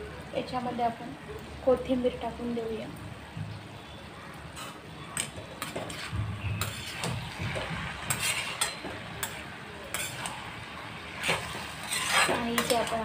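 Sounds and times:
spatula scraping a pan: 4.5 - 13.0.

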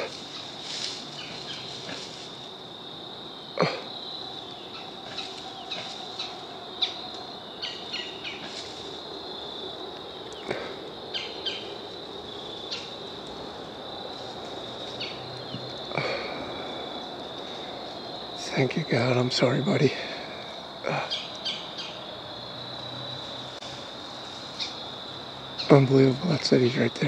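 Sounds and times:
crackles in dry leaf litter: 0.0 - 3.0, 4.2 - 18.5
insects trilling: 0.0 - 27.0.

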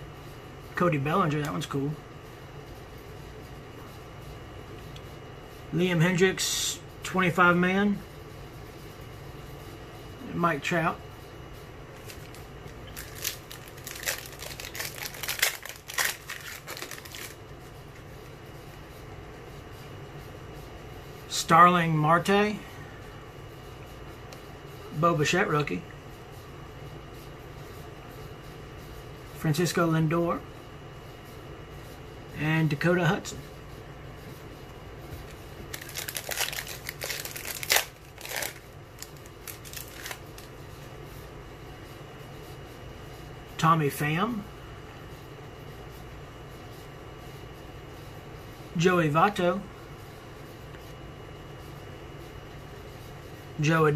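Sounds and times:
foil wrapper crinkling and tearing: 12.0 - 17.4, 35.7 - 40.5.

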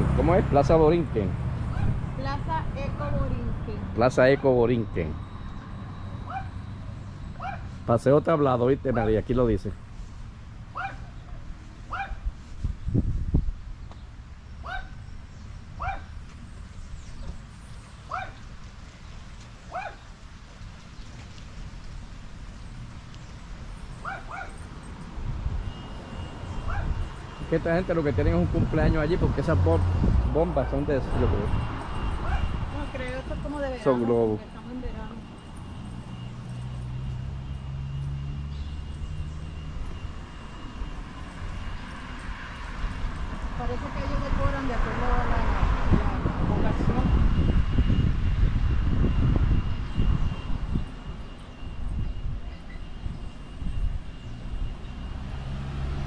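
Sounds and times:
low engine hum: 0.0 - 56.0
dog yipping: 1.7 - 2.0, 6.2 - 6.6, 7.4 - 7.8, 10.7 - 11.3, 11.9 - 12.2, 14.6 - 15.0, 15.8 - 16.1, 18.1 - 18.4, 19.7 - 20.0, 24.0 - 24.6, 26.6 - 27.0, 32.2 - 32.5.

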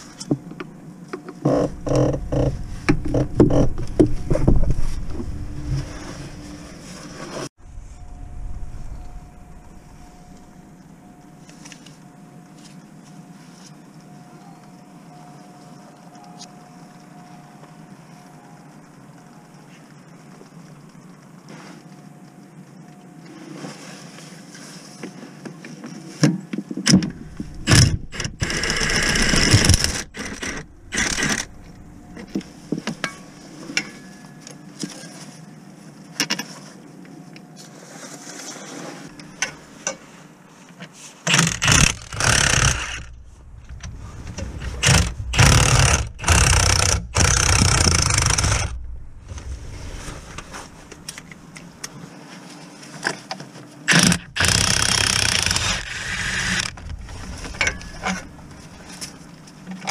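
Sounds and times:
handheld power tool bursts: 41.3 - 43.1, 53.9 - 56.8.

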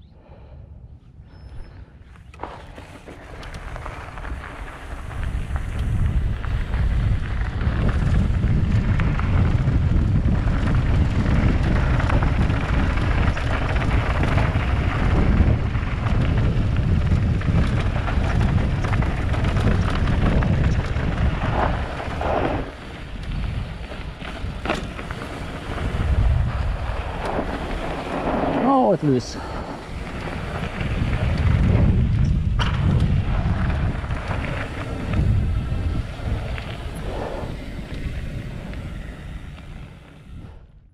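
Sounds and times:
wind buffeting microphone: 0.0 - 40.9
tyre roar and rattle on dirt: 2.1 - 40.8.

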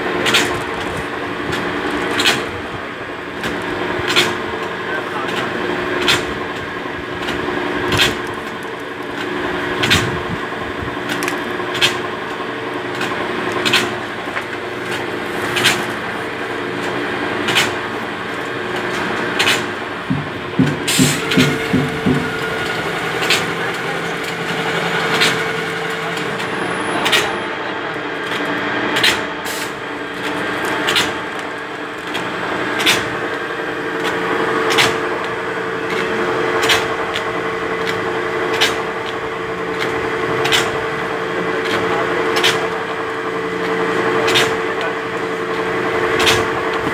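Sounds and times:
machinery humming: 0.0 - 46.9
rattle of knocks: 19.5 - 23.5.

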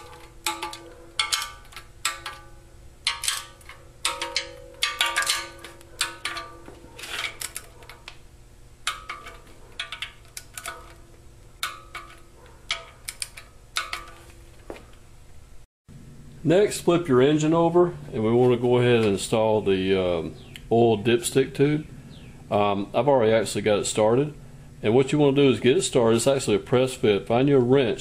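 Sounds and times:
metal clinks: 0.0 - 8.1, 8.9 - 14.3.

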